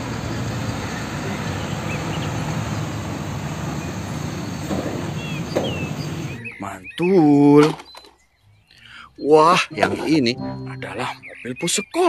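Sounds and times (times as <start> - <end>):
truck diesel engine rumble: 0.0 - 6.9.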